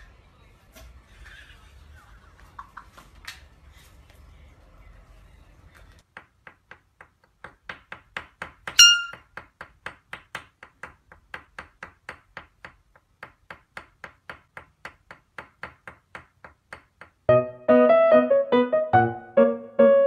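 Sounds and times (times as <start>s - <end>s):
stick tapping on wooden desk: 6.1s - 17.3s
short bright ping: 8.8s - 9.2s.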